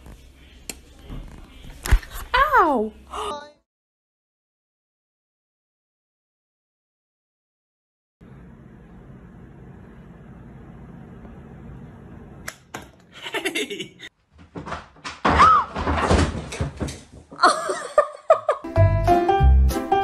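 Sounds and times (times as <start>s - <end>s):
sharp knocks and thumps with clatter: 14.3s - 17.4s.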